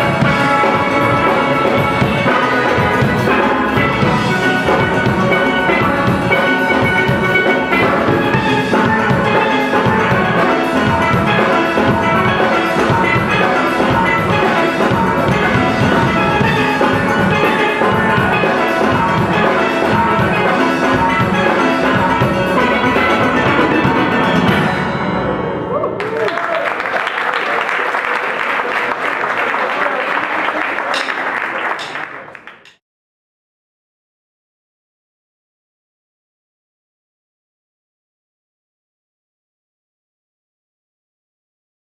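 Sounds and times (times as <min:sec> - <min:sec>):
drum beat: 0:00.0 - 0:24.8
steelpans playing a melody: 0:00.0 - 0:25.8.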